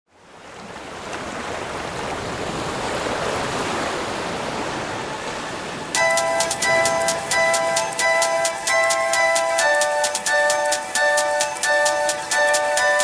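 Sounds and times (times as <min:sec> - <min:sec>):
sea waves washing ashore: 0:00.1 - 0:13.0
music of bright short notes: 0:06.0 - 0:13.0.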